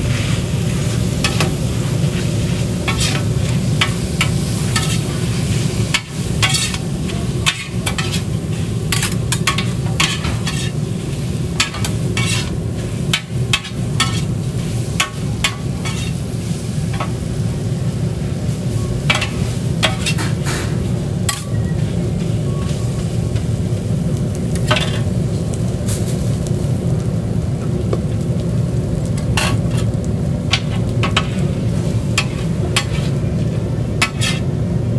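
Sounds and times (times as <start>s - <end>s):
meat sizzling on a griddle: 0.0s - 34.9s
metal spatula scraping and clanking: 2.5s - 10.8s, 11.6s - 14.3s, 15.0s - 16.2s, 19.1s - 21.9s, 24.6s - 25.1s, 29.2s - 31.4s, 32.2s - 33.3s, 34.0s - 34.5s.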